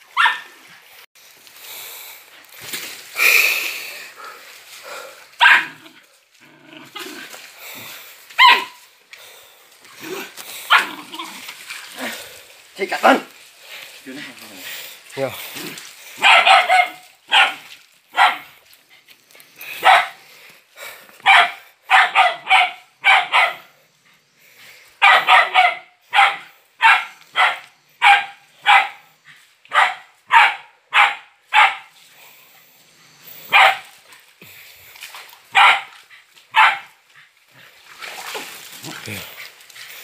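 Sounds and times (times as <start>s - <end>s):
dog barking: 0.1s - 0.5s, 5.4s - 5.9s, 8.4s - 8.8s, 10.7s - 11.0s, 16.2s - 18.5s, 19.8s - 20.2s, 21.2s - 23.7s, 25.0s - 29.1s, 29.7s - 31.9s, 33.5s - 33.9s, 35.5s - 37.0s.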